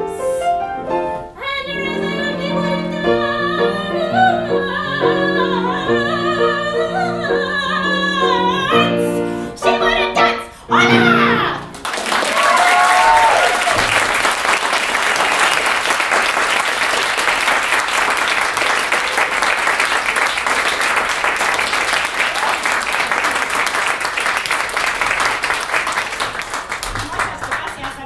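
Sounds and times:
audience applauding: 0:11.7 - 0:28.0
whooping cheer: 0:12.2 - 0:14.3, 0:22.2 - 0:23.6.

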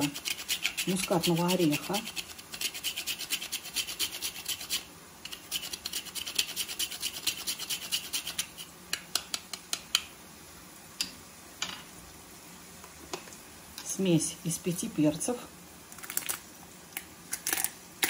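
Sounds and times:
nutmeg grating on metal grater: 0:00.0 - 0:08.7.

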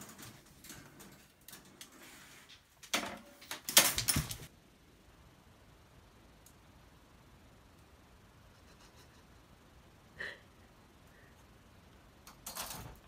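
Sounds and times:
wire pen rattling and clanking: 0:00.0 - 0:02.0, 0:02.9 - 0:04.5, 0:12.3 - 0:13.0.

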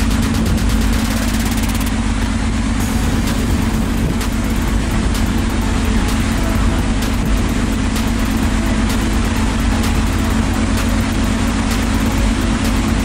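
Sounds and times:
ship engines droning: 0:00.0 - 0:13.0
broad hiss: 0:02.8 - 0:12.9.

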